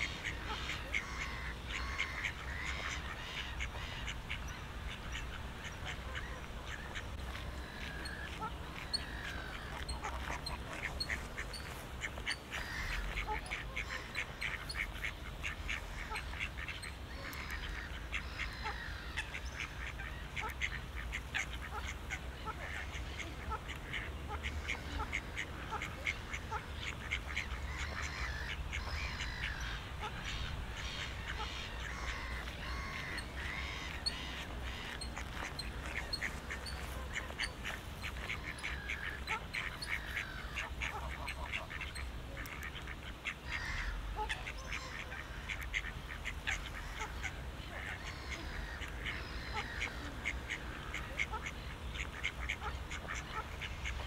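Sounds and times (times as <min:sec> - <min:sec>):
ducks quacking: 0:00.0 - 0:54.0
small birds chirping: 0:22.5 - 0:54.0.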